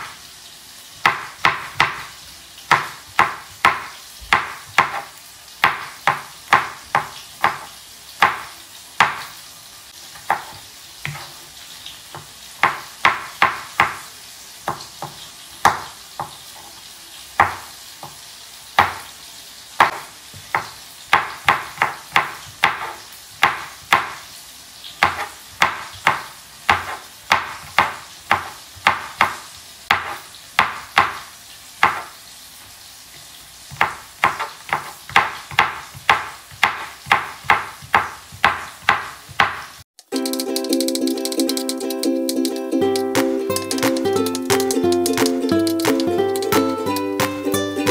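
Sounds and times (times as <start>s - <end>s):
knife chopping on cutting board: 1.0s - 9.4s, 10.1s - 11.4s, 12.1s - 16.8s, 17.4s - 18.2s, 18.8s - 19.1s, 19.8s - 24.2s, 25.0s - 32.2s, 33.7s - 39.8s, 43.2s - 47.4s.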